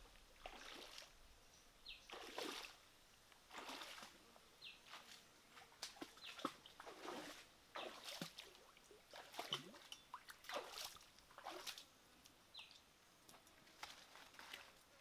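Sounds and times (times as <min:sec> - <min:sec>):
feet splashing in a stream: 0:00.4 - 0:01.1, 0:02.1 - 0:02.8, 0:03.5 - 0:11.9, 0:13.6 - 0:14.9.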